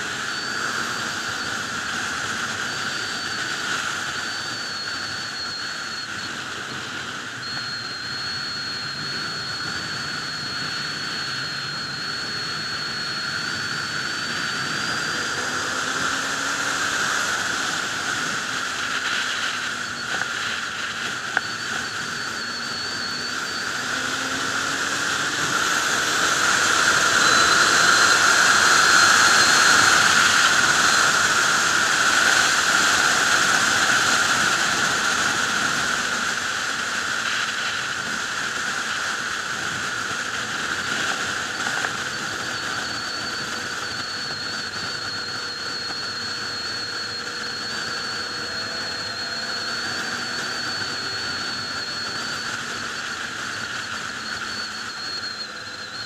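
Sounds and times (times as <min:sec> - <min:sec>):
motorcycle engine: 0:00.0 - 0:56.0
thin high whistle: 0:00.0 - 0:56.0.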